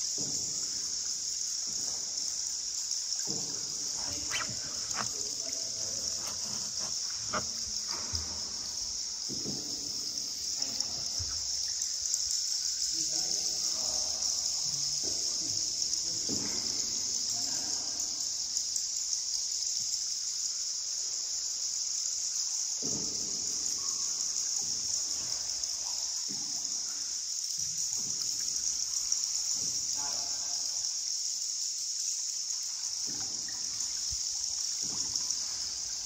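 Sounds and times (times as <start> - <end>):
water lapping and trickling: 0.0 - 13.0, 31.9 - 36.0
shrill insect chorus: 0.0 - 36.0.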